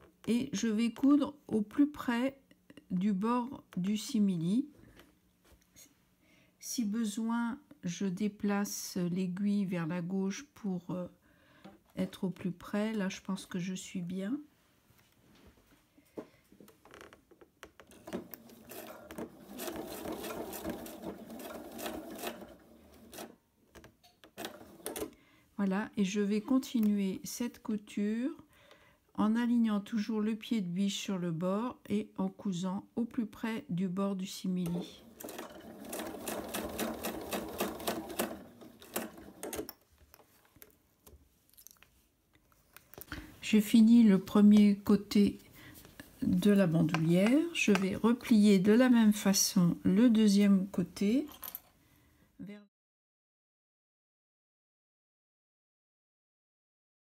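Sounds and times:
sewing machine stitching: 17.8s - 23.4s, 24.2s - 25.1s, 34.6s - 39.8s.

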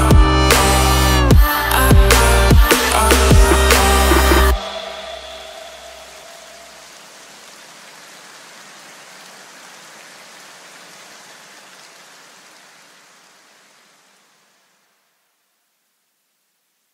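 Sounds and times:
electronic dance music: 0.0s - 6.8s
steady hiss: 0.6s - 16.9s.

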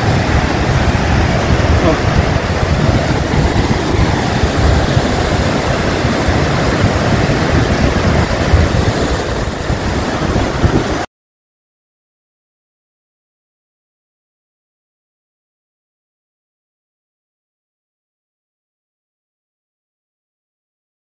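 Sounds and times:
floodwater rushing over rocks: 0.0s - 11.1s
wind buffeting microphone: 0.0s - 11.1s.

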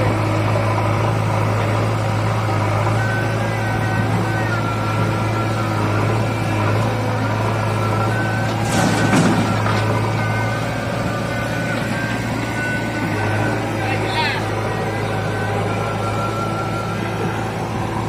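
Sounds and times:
diesel engines droning: 0.0s - 18.0s
soil dumped into steel trolley: 8.5s - 10.1s.

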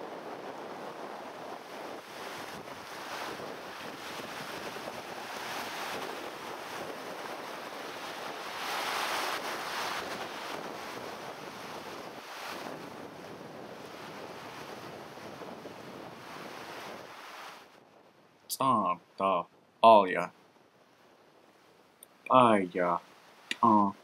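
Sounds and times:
wind gusting across microphone: 0.0s - 18.5s.

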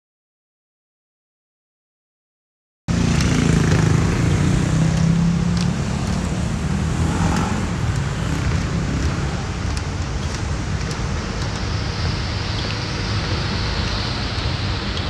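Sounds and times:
low rumble: 3.9s - 14.8s.

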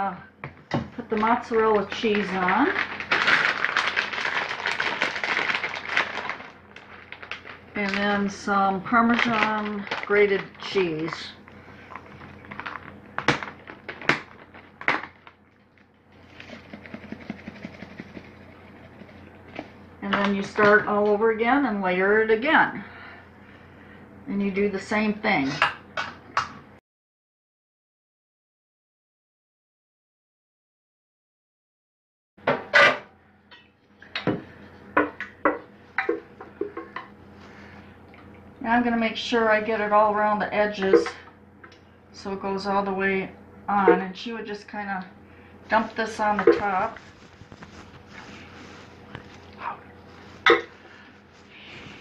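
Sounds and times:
grated cheese shaken out ticking: 16.4s - 19.1s.

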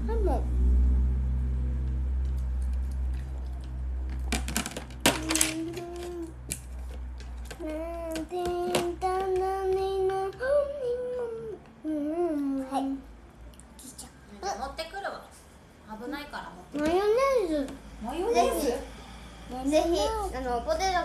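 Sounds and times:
child singing long notes: 5.2s - 6.4s, 7.6s - 13.0s.

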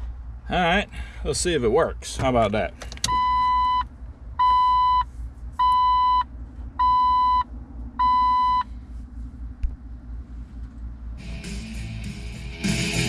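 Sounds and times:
electronic warning chime beeps: 5.6s - 6.2s, 8.0s - 8.6s.

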